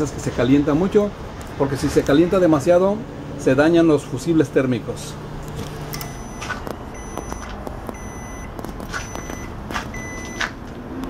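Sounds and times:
microwave oven hum: 5.2s - 8.5s
microwave short beeps: 6.0s - 10.4s.

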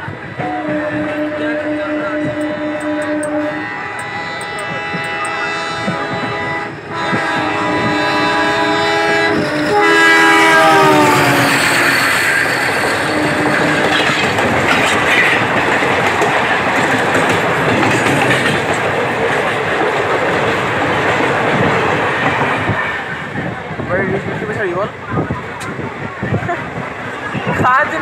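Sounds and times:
train coaches running on rails: 0.0s - 28.0s
train horn: 0.4s - 14.0s.

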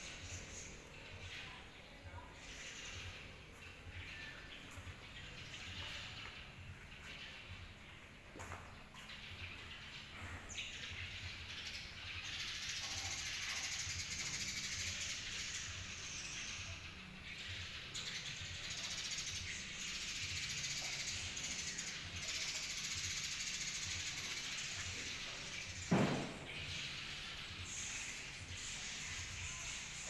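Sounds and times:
small birds chattering: 0.0s - 30.0s
thump: 25.9s - 26.6s.

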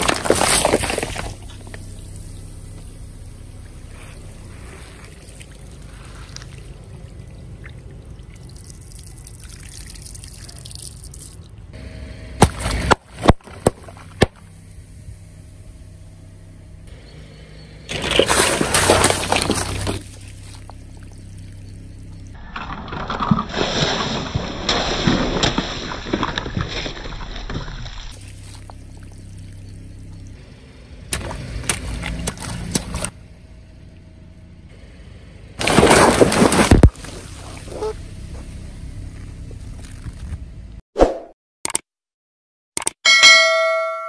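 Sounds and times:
water trickling on asphalt: 0.1s - 11.7s, 17.9s - 22.4s, 24.7s - 30.4s
water balloons bursting: 12.4s - 14.5s, 17.9s - 21.6s, 22.4s - 30.2s, 35.6s - 38.0s.

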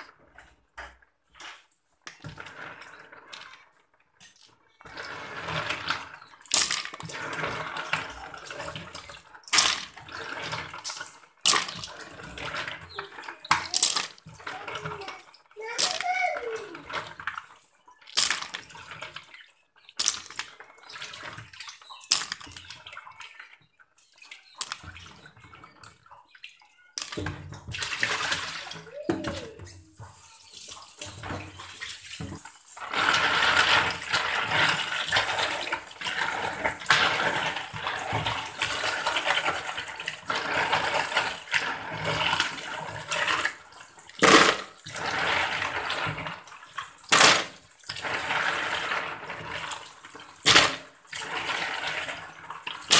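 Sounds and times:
tap running into plastic basin: 27.0s - 52.9s
hand sloshing and scrubbing snails: 27.7s - 52.9s.

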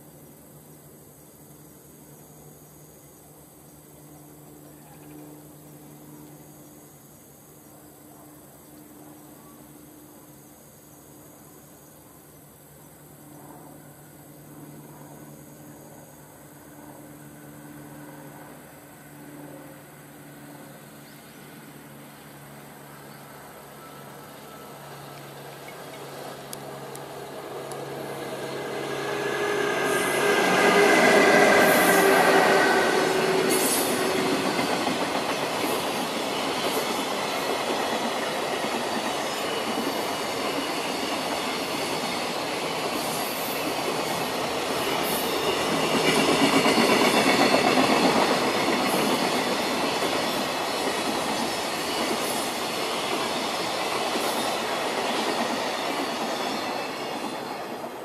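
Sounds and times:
electric locomotive whine: 0.0s - 58.0s
train wheels clattering on rails: 23.8s - 58.0s.

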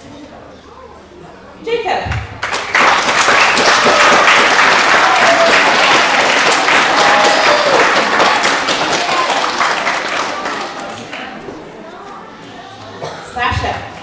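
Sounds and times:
children applauding: 2.4s - 11.4s.

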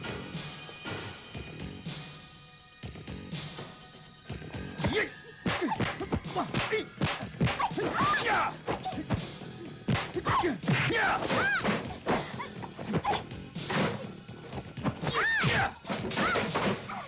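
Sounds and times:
film music: 0.0s - 17.0s
punch and kick impacts: 4.8s - 9.3s, 9.9s - 12.3s.

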